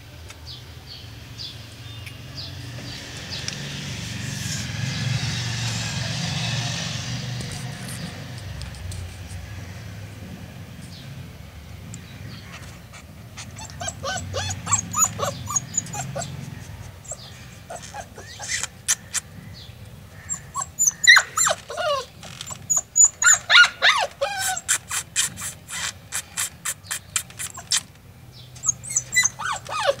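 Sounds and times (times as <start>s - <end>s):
puppy whining and yelping: 12.5s - 19.3s, 20.3s - 27.9s, 28.6s - 30.0s.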